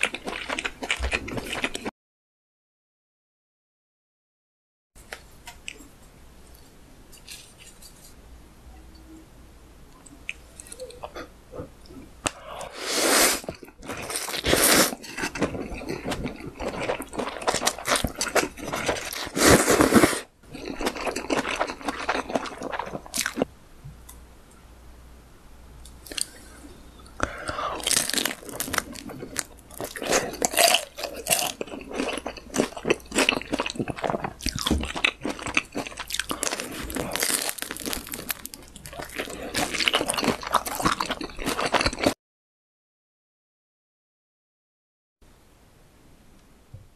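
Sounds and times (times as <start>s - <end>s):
crisp crunching and chewing: 13.4s - 19.8s, 20.5s - 23.5s, 27.5s - 42.2s.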